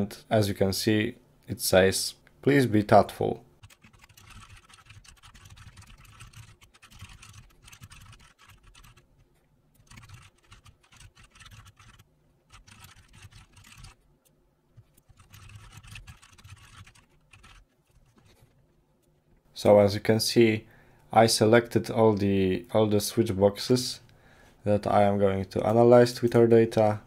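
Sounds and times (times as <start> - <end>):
faint keyboard typing: 3.6 - 19.4.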